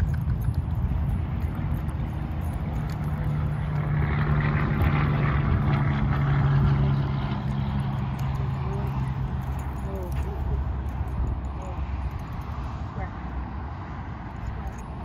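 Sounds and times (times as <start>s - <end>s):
engine hum: 0.0s - 15.0s.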